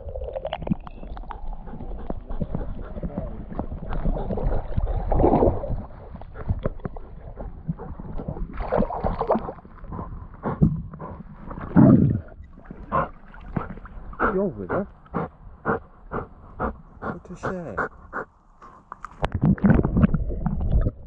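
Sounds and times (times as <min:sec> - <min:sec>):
river water splashing and gurgling: 0:02.6 - 0:07.1, 0:08.2 - 0:09.9, 0:11.3 - 0:15.3.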